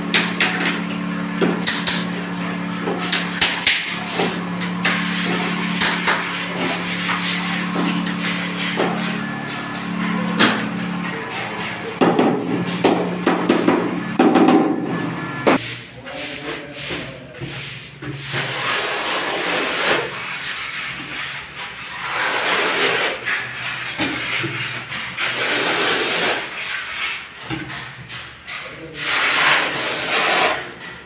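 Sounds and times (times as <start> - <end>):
trowel scraping adhesive on wall: 1.4 - 9.6, 15.6 - 30.8
rubbing against tile: 15.6 - 30.8.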